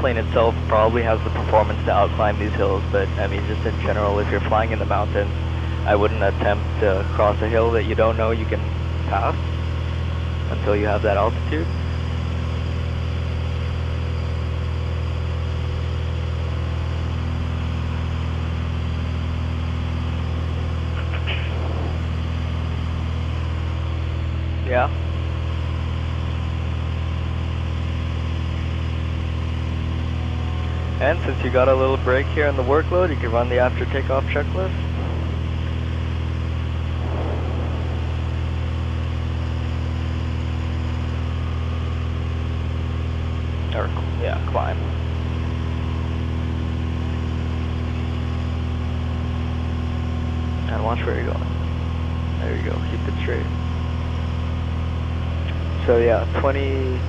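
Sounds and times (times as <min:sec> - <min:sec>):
propeller plane engine droning: 0:00.0 - 0:57.0.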